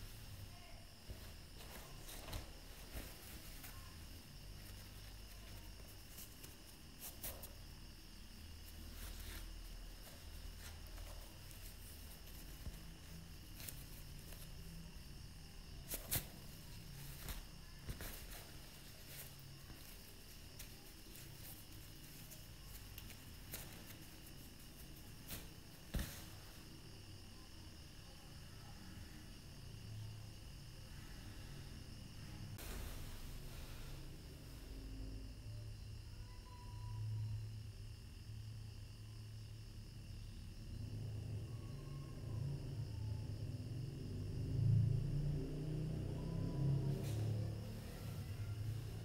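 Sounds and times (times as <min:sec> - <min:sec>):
cloth rustling: 0:00.0 - 0:15.0, 0:15.8 - 0:26.8
low hiss and hum: 0:00.0 - 0:49.0.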